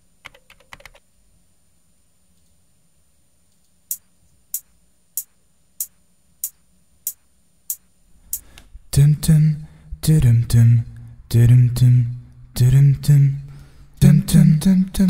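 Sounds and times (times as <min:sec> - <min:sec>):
metronome clicks: 0:03.9 - 0:08.6.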